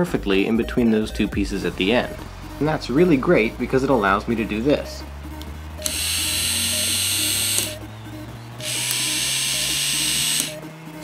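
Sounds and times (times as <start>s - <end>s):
toy gear motor whirring: 5.8s - 7.8s, 8.6s - 10.6s.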